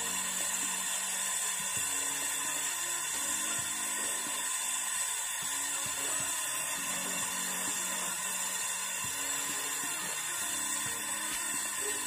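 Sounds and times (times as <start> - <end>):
torch flame hissing: 0.0 - 12.0.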